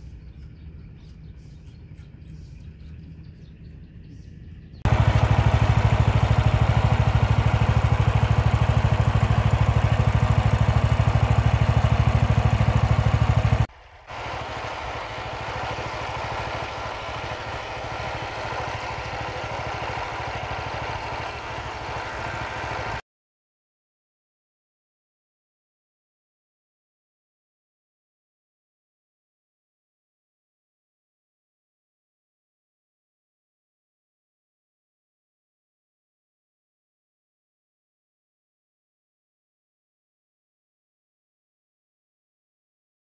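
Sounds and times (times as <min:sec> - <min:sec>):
small engine puttering: 0:04.9 - 0:23.0.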